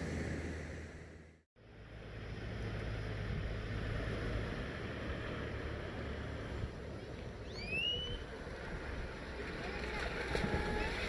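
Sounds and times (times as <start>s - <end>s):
wind buffeting microphone: 7.7s - 11.0s.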